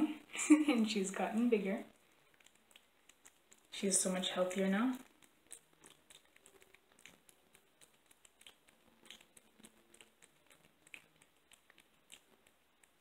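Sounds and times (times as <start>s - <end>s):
kitten chewing wet food: 0.1s - 13.0s.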